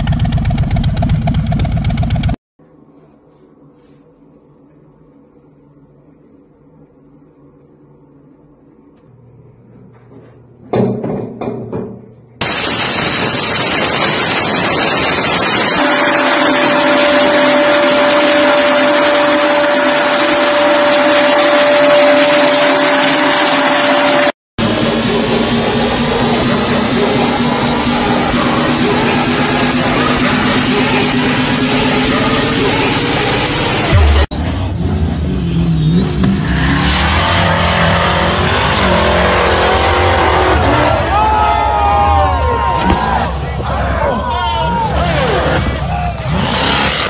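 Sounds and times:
vacuum dust extractor running: 12.4 - 34.0
buggy engine revving hard: 24.6 - 47.0.

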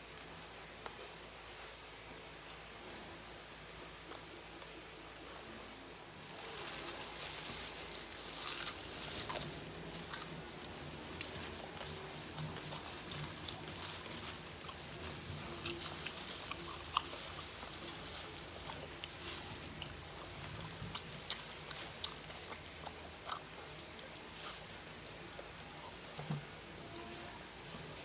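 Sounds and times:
chewing: 6.2 - 27.2
plastic glove crinkling: 6.2 - 27.2.

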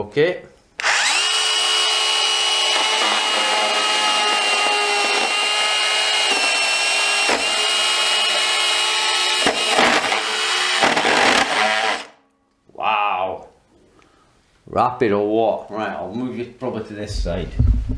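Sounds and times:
power saw cutting hard plastic: 0.8 - 12.2.

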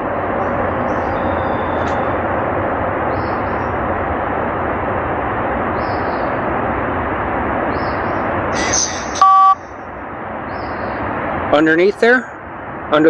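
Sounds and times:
electronic beep: 8.6 - 9.7.

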